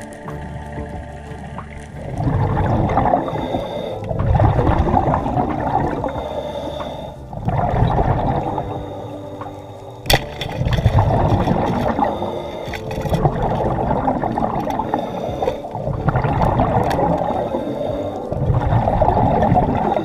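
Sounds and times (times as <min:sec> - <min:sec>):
underwater rushing and churning: 0:00.0 - 0:20.0
speargun snap underwater: 0:09.4 - 0:13.7.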